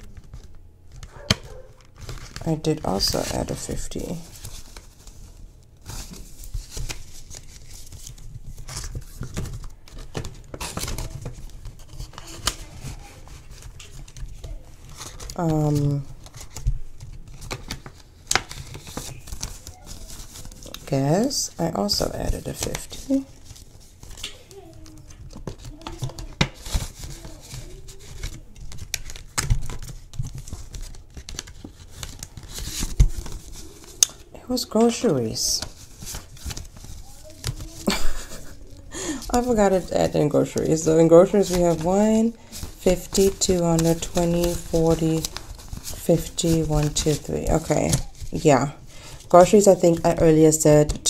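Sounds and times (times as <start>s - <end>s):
banknotes rustling and crinkling: 0.0s - 51.0s
plastic pages being turned: 0.0s - 51.0s
small clicks and taps: 24.2s - 26.6s.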